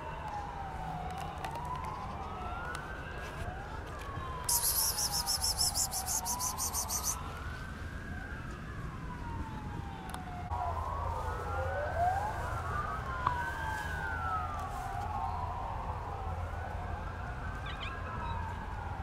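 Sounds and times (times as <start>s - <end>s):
emergency sirens wailing: 0.0s - 19.0s
rapid high-pitched chirring: 4.5s - 7.2s.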